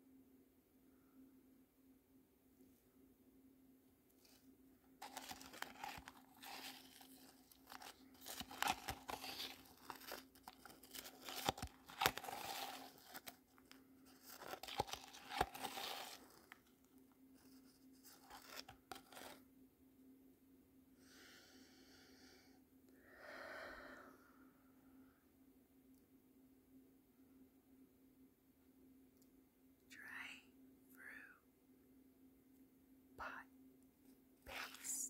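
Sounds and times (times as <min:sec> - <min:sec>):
plastic cup crinkling: 0:05.0 - 0:16.7, 0:18.0 - 0:19.4.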